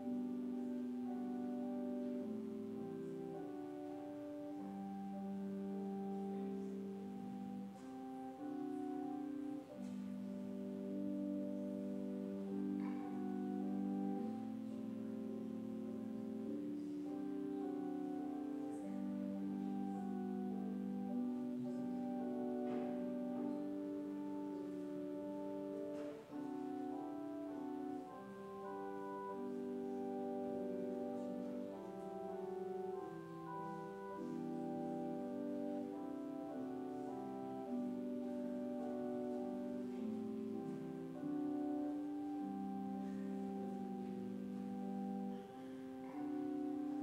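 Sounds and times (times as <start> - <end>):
slow keyboard chords: 0.0 - 47.0.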